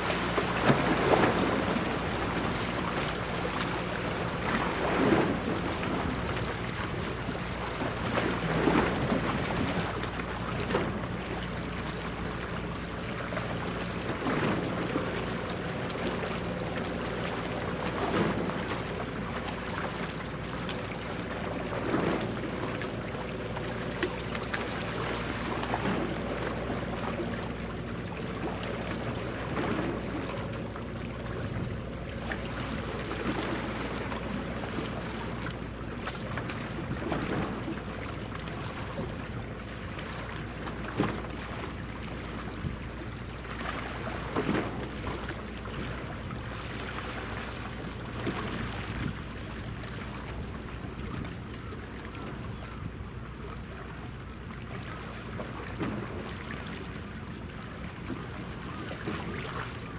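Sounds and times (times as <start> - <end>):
water washing against shore: 0.0 - 52.8, 53.4 - 59.9
ship machinery hum: 0.0 - 59.9.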